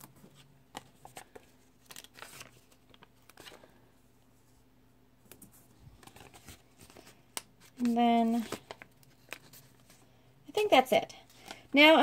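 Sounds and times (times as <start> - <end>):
paper stickers rustling: 0.1 - 3.7, 5.3 - 10.0.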